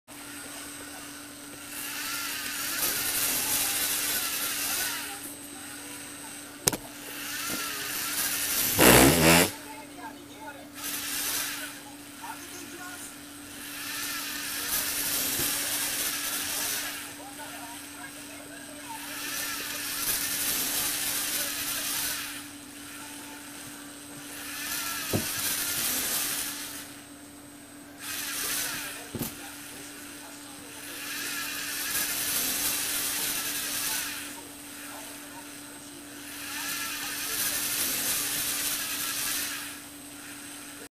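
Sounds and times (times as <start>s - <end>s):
small electric motor whirring: 1.5s - 6.1s, 6.7s - 9.6s, 10.8s - 11.8s, 13.4s - 18.2s, 18.8s - 27.1s, 28.0s - 30.1s, 30.8s - 40.8s
sharp click: 6.7s - 6.9s
electric motor whirring: 6.7s - 9.6s, 24.3s - 27.0s
plastic gears grinding: 8.5s - 9.6s.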